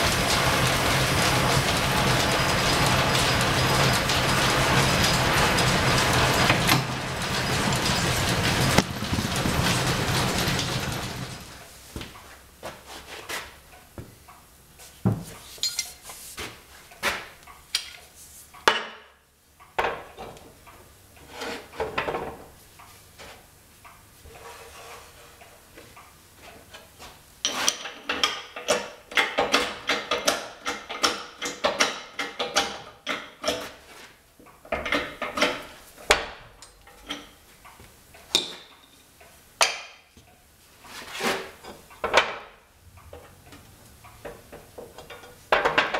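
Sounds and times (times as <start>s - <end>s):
steel parts clinking and knocking: 15.6s - 16.0s.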